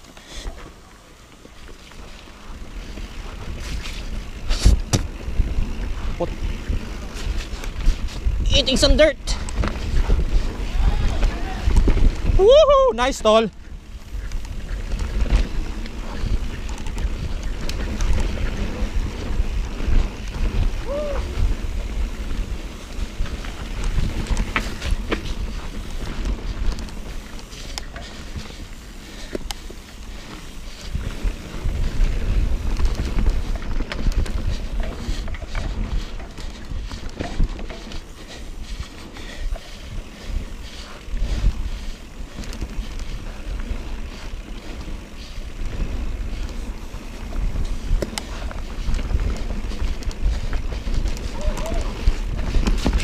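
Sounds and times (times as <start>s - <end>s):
bike clicks and rattles: 0.0s - 53.0s
tyre noise on dirt trail: 0.0s - 53.0s
wind buffeting microphone: 2.6s - 53.0s.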